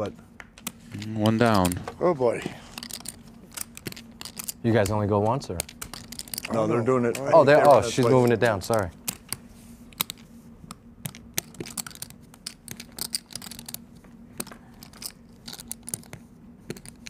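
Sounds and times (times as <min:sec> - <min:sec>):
faint steady hum: 0:00.0 - 0:17.0
poker chips clicking: 0:02.7 - 0:06.5, 0:07.1 - 0:10.3, 0:11.0 - 0:13.8, 0:14.4 - 0:17.0.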